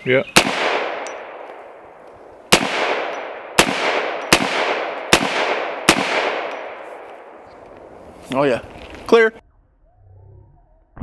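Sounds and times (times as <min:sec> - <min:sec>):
rifle shots with echo: 0:00.4 - 0:07.4.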